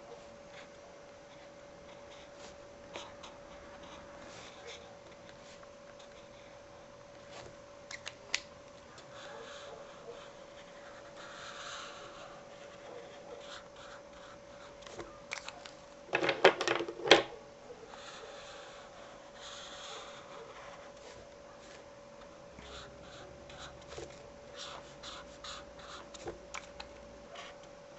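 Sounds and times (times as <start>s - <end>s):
faint steady hum: 0.0s - 27.9s
marker scratching on paper: 9.1s - 15.1s, 17.9s - 26.4s.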